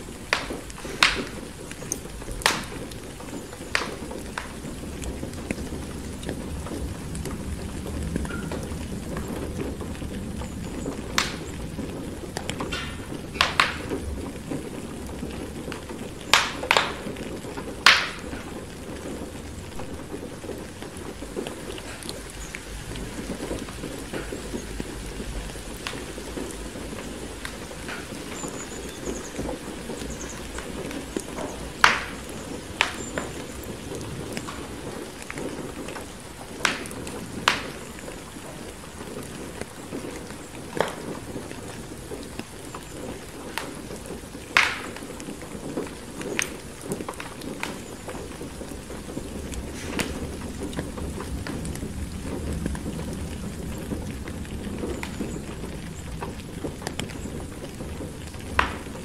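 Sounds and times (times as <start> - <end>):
sharp pops: 0.0 - 7.3, 11.1 - 41.2, 43.0 - 48.3
steady rain: 0.0 - 59.0
wood fire crackling: 0.0 - 59.0.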